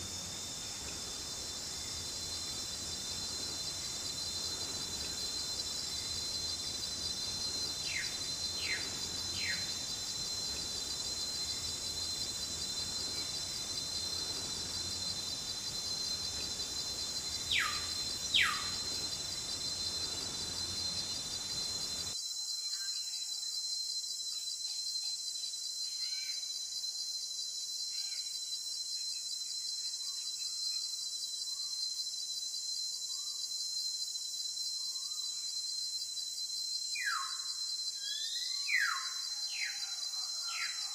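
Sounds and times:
insect chorus trilling: 0:00.0 - 0:40.9
bird chirps: 0:16.3 - 0:20.5.

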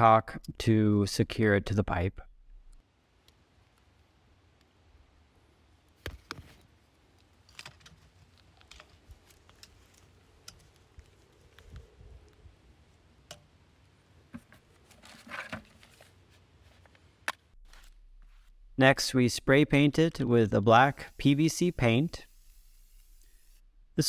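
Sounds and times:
gloved hands clicking and rustling: 0:06.0 - 0:12.4.

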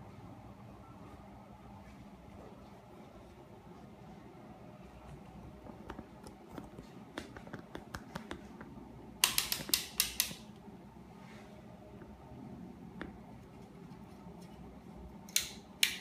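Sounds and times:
multimeter control clicks: 0:09.2 - 0:10.5.

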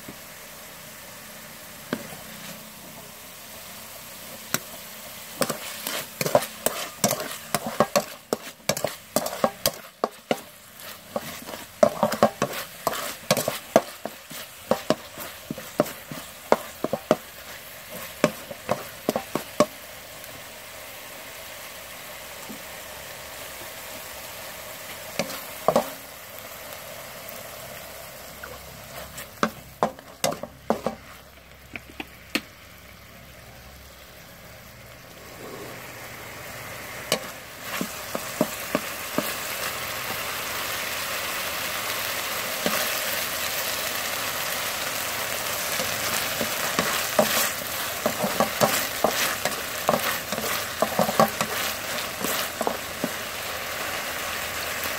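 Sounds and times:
meat sizzling in a wok: 0:00.0 - 0:54.9
wooden spatula scraping metal: 0:05.4 - 0:19.5, 0:28.9 - 0:31.4, 0:45.8 - 0:53.2.

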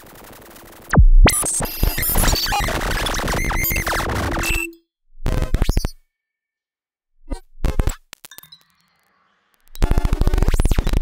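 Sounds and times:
glitchy electronic clicks and tones: 0:00.9 - 0:06.0, 0:07.6 - 0:11.0.

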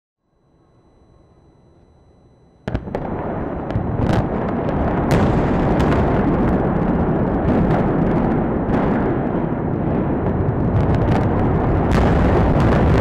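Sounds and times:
heavy rumble: 0:02.7 - 0:13.0
loud explosive blast: 0:02.7 - 0:13.0.

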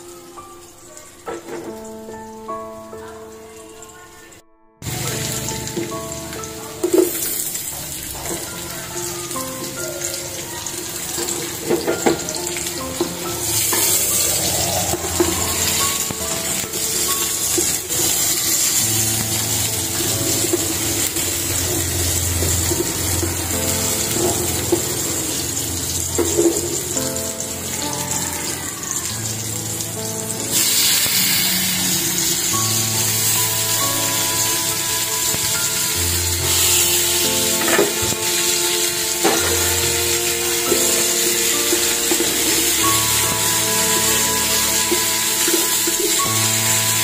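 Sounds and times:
background music: 0:00.0 - 0:47.0
food sizzling in oil: 0:04.8 - 0:47.0.

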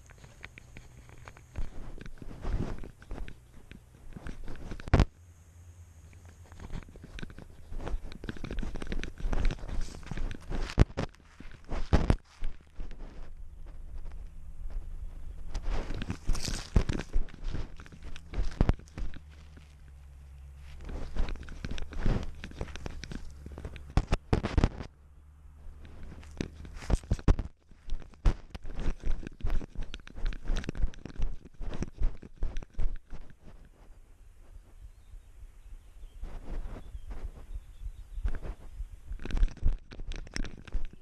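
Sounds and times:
dry leaves rustling and crunching: 0:00.0 - 0:04.9, 0:06.2 - 0:24.9, 0:25.6 - 0:31.4
stems scraping camera: 0:00.0 - 0:05.2, 0:06.0 - 0:35.2, 0:36.0 - 0:41.0.

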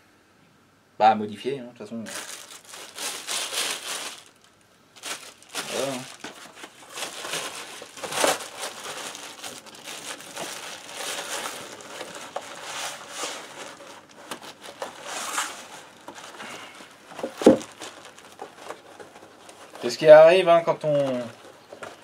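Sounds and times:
plastic wrapping crinkling: 0:02.0 - 0:22.0
cardboard sleeve rustling and scraping: 0:05.0 - 0:22.0.

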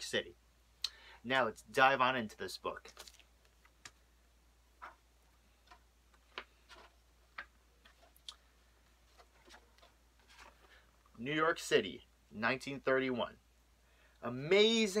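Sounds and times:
book pages turning: 0:02.9 - 0:04.0, 0:05.6 - 0:08.2, 0:09.0 - 0:10.8.

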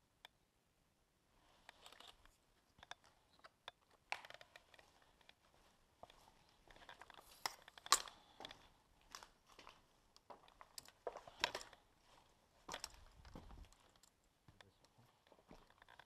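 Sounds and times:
tripod being handled: 0:01.6 - 0:05.4, 0:06.0 - 0:08.6
footsteps on debris-strewn floor: 0:03.9 - 0:14.1.

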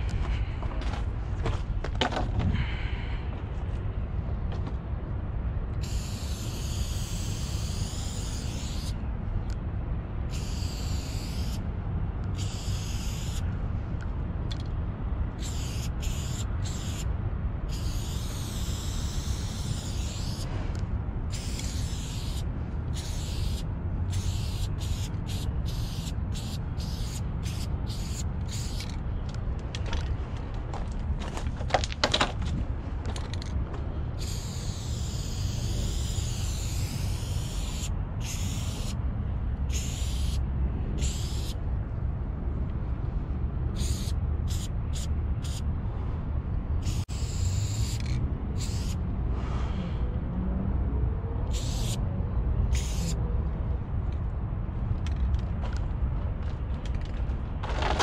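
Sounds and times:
steady low rumble: 0:00.0 - 0:58.0
aerosol spray can spraying: 0:05.8 - 0:09.0, 0:10.3 - 0:11.6, 0:12.4 - 0:13.4, 0:15.4 - 0:17.1, 0:17.7 - 0:20.5, 0:21.3 - 0:29.0, 0:34.2 - 0:39.0, 0:39.7 - 0:40.4, 0:41.0 - 0:41.6, 0:43.8 - 0:45.6, 0:46.8 - 0:49.0, 0:51.5 - 0:52.0, 0:52.7 - 0:53.1.

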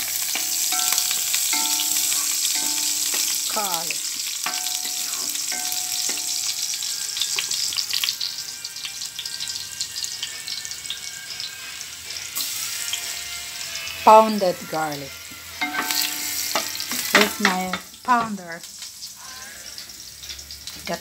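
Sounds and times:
garlic sizzling in oil: 0:00.0 - 0:21.0
wooden spatula scraping: 0:04.4 - 0:06.5.

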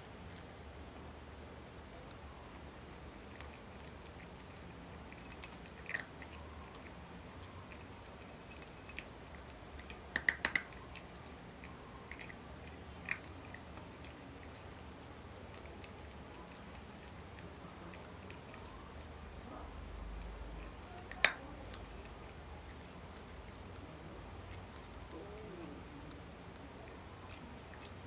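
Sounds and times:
cat crunching dry kibble: 0:02.8 - 0:18.8, 0:19.8 - 0:28.0.

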